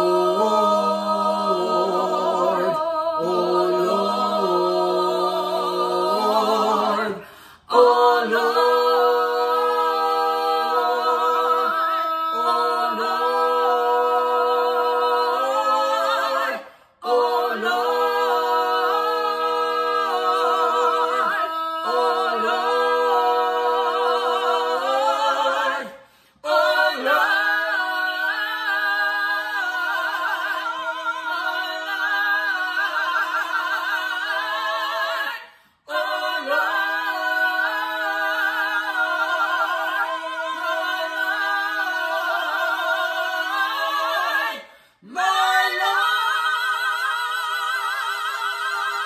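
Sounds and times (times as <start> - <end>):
a cappella gospel singing in harmony: 0.0 - 49.0.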